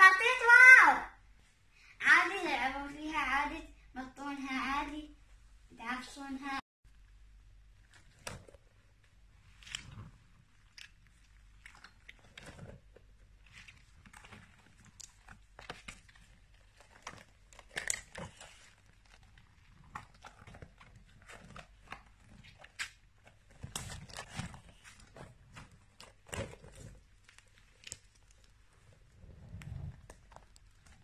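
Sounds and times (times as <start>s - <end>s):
plastic ball crinkling and crackling: 6.9s - 31.0s.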